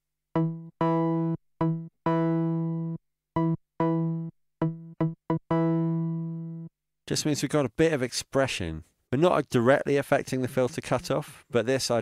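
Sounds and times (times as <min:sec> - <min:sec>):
synth saw lead notes: 0:10.1 - 0:11.2.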